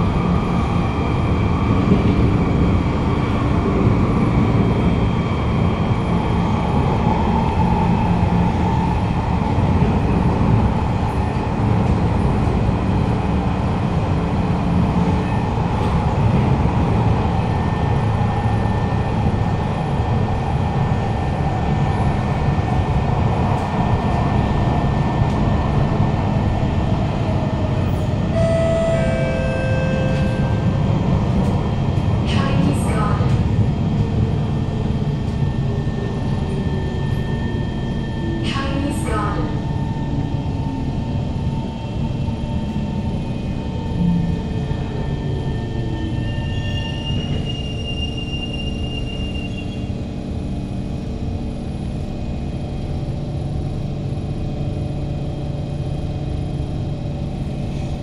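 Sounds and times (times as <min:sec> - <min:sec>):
train wheels rumbling on track: 0:00.0 - 0:58.0
short high tones: 0:28.3 - 0:30.7.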